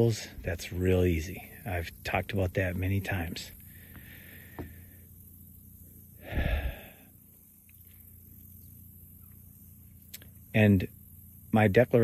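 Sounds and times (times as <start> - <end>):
faint steady hum: 0.0 - 12.0
man breathing into microphone: 6.2 - 7.1.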